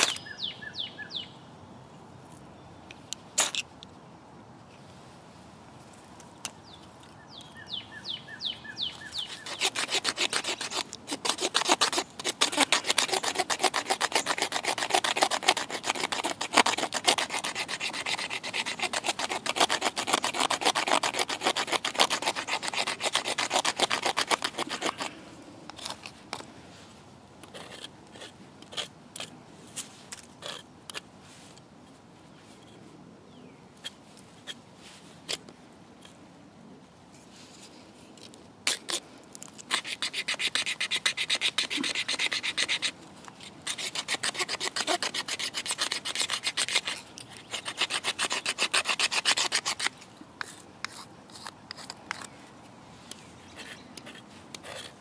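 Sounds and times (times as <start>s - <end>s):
blade scraping wooden stick: 0.0s - 0.3s, 9.0s - 26.5s, 27.4s - 31.6s, 37.2s - 52.4s, 53.1s - 55.0s.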